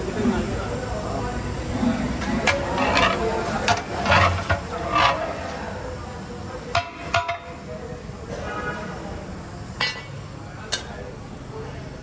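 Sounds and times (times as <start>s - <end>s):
metal ladle clanking on steel pot: 2.3s - 5.4s, 6.7s - 7.6s, 9.8s - 11.0s.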